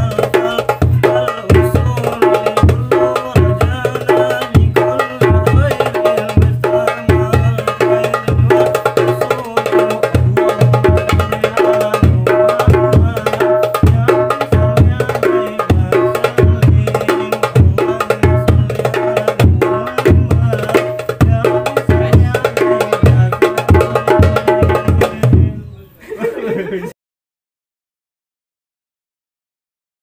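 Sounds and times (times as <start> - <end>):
darbuka strokes: 0.0 - 25.6
small frame drum: 0.0 - 25.7
deep bass drum thumps: 9.8 - 25.6.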